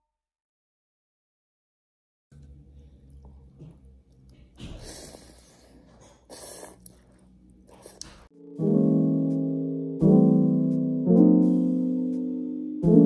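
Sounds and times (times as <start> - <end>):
airy mouth sounds eating: 2.4 - 8.3.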